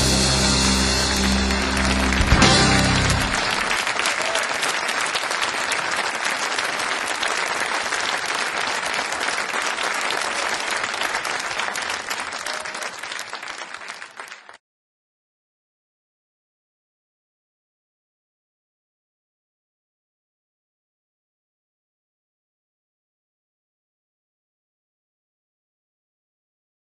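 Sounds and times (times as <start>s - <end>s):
audience applauding: 0.0s - 14.6s.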